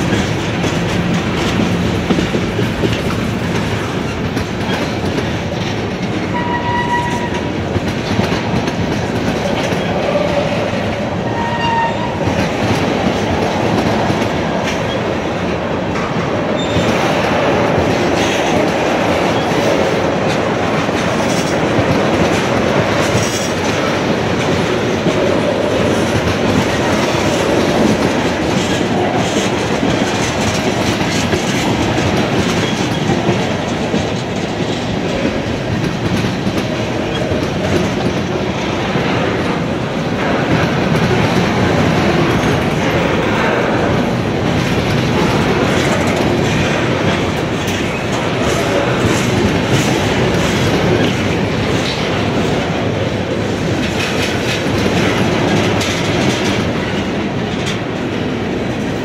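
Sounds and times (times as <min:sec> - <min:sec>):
train wheels rumbling: 0:00.0 - 0:59.0
wheels clacking over rail joints: 0:00.0 - 0:59.0.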